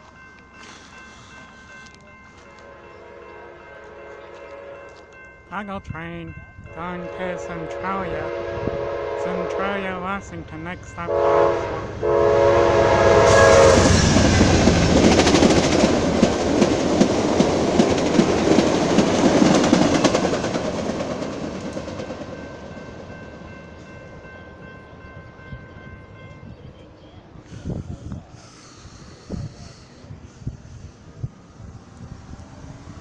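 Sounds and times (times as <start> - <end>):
train passing at speed: 0.0 - 33.0
train horn: 2.6 - 5.0, 7.0 - 10.1, 11.0 - 14.4.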